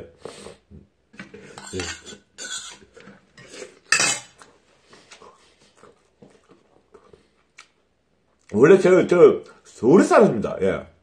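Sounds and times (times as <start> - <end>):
chopsticks clattering on metal bowl: 1.6 - 2.8, 3.9 - 4.4
man chewing with wet mouth clicks: 5.6 - 8.5.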